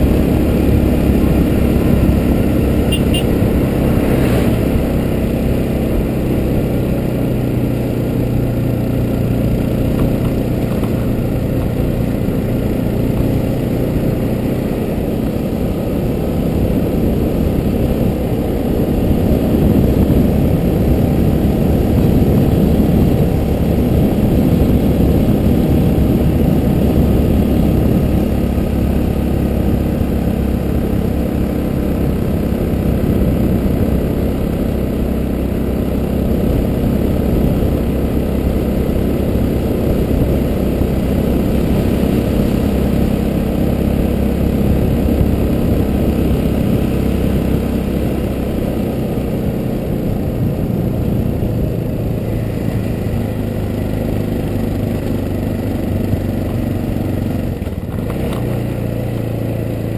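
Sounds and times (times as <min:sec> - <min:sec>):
motorcycle engine running: 0:00.0 - 0:59.9
wind noise on microphone: 0:16.4 - 0:34.5.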